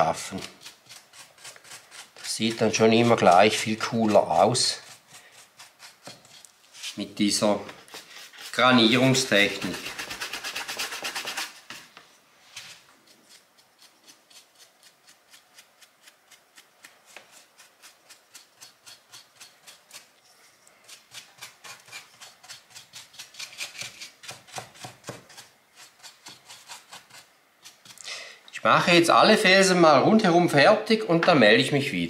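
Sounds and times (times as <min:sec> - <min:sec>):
paintbrush bristles scraping: 0:00.0 - 0:28.0.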